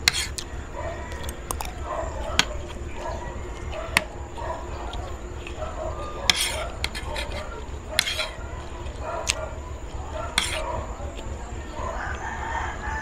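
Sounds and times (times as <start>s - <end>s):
cutlery clinking on a plate: 8.0s - 8.4s, 10.4s - 10.6s.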